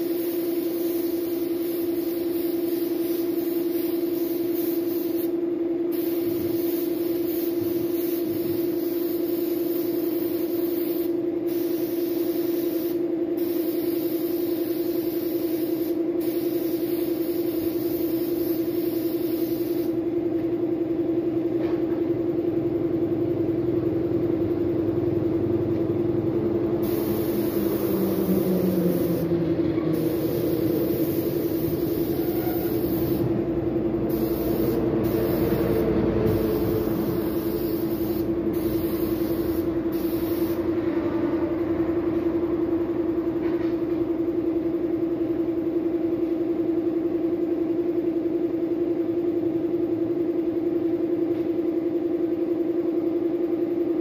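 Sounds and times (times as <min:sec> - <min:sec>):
spray gun hissing: 0:00.0 - 0:20.0, 0:26.8 - 0:29.3, 0:29.9 - 0:33.4, 0:34.0 - 0:40.7
air compressor humming: 0:00.0 - 0:47.0
motor hum: 0:22.3 - 0:43.4.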